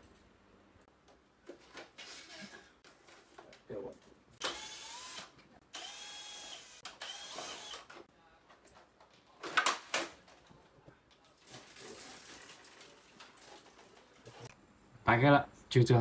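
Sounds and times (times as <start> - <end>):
electric screwdriver whirring: 4.4 - 7.9.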